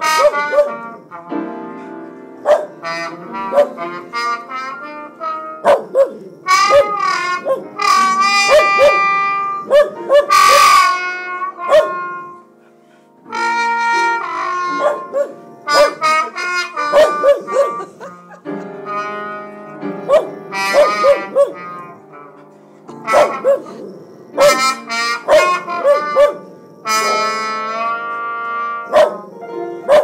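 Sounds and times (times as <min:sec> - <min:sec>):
jazz trombone and piano: 0:00.0 - 0:30.0
dog barking in short bursts: 0:03.5 - 0:03.8, 0:11.7 - 0:12.0, 0:16.9 - 0:17.9, 0:20.1 - 0:21.6, 0:23.1 - 0:23.8, 0:28.9 - 0:29.2.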